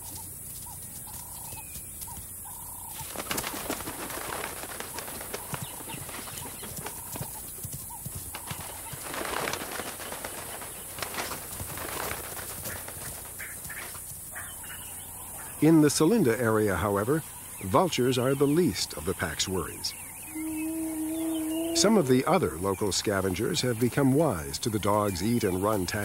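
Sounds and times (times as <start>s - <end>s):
dogs rushing through dry grass: 0.0s - 15.0s
vulture wings flapping: 0.0s - 17.6s.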